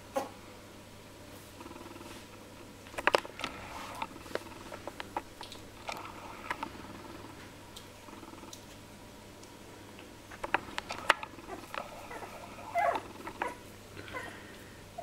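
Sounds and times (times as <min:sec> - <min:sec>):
puppies squeaking and grunting: 0:11.0 - 0:14.4.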